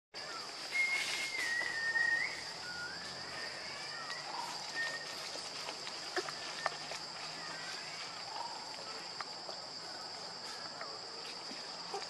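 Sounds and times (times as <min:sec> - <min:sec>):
whistle-like calls: 0:00.6 - 0:05.3.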